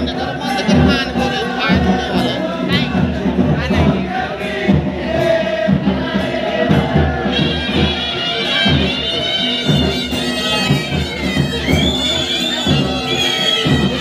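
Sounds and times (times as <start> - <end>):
drums beating: 0.0 - 14.0
shrill wind instruments: 4.4 - 14.0.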